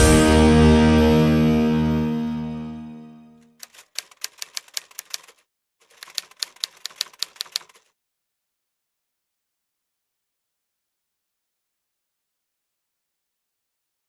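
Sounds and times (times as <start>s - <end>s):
song's last chord: 0.0s - 3.4s
typewriter key clicks: 3.6s - 7.9s.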